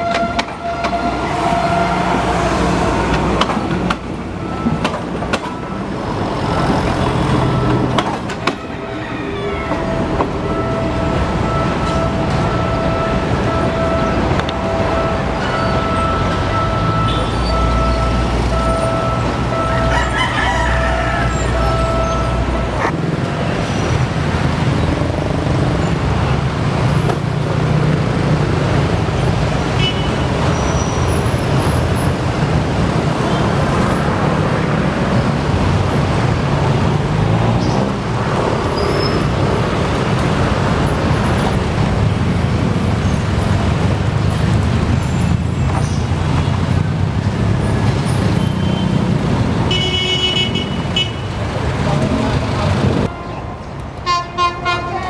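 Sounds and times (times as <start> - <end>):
train horn: 0.0 - 2.8, 53.1 - 55.0
diesel train engine humming: 0.0 - 20.1
traffic noise: 0.0 - 55.0.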